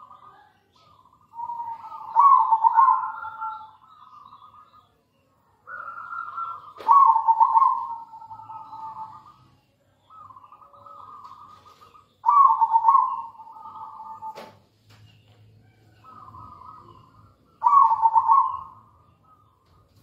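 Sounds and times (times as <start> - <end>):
dove cooing: 1.3 - 4.6, 5.6 - 9.5, 10.1 - 14.5, 16.0 - 19.0.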